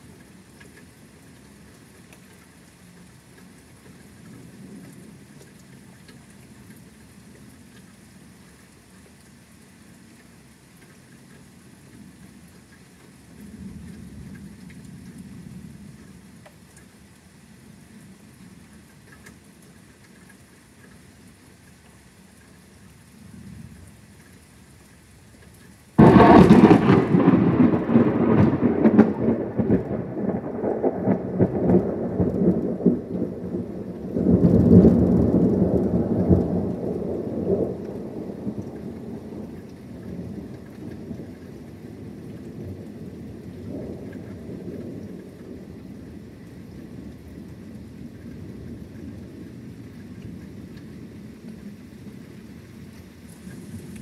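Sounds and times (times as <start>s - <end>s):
rain falling: 0.0s - 54.0s
thunder rumbling: 26.0s - 51.6s.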